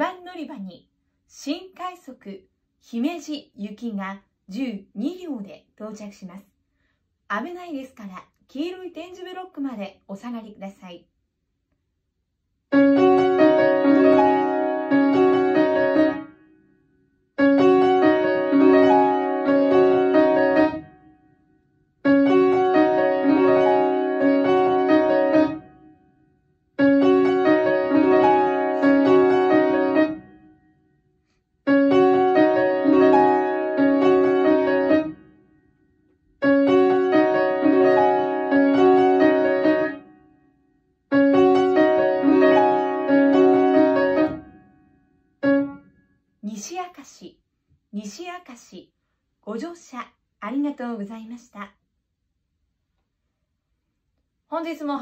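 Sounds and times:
upright piano melody: 0:12.7 - 0:16.6, 0:17.4 - 0:21.4, 0:22.0 - 0:26.2, 0:26.8 - 0:30.9, 0:31.6 - 0:40.4, 0:41.1 - 0:46.0.

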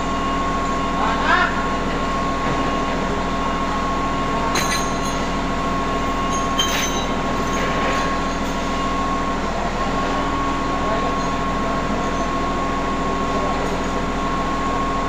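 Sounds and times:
heavy machinery drone and whine: 0:00.0 - 0:15.0.

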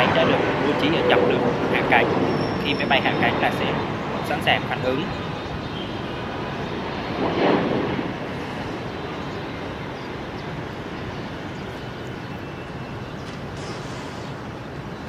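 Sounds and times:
airliner jet noise landing: 0:00.0 - 0:15.0.

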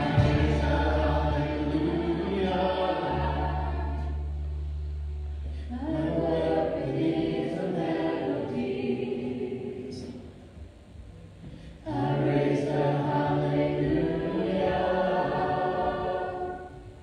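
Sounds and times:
voices singing together: 0:00.0 - 0:04.5, 0:05.7 - 0:10.6, 0:11.8 - 0:17.0
acoustic guitar: 0:00.0 - 0:06.0
electric bass: 0:00.0 - 0:08.8.

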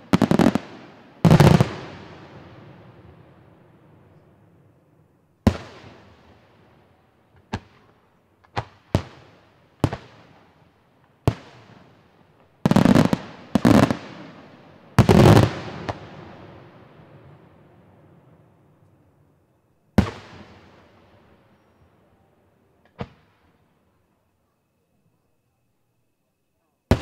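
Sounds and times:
fireworks bangs: 0:00.0 - 0:03.3, 0:12.6 - 0:16.5, 0:20.0 - 0:21.2.

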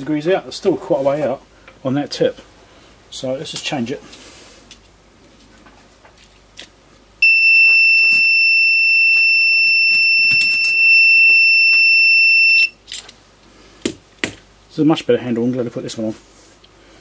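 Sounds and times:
continuous high beep: 0:07.2 - 0:12.8.

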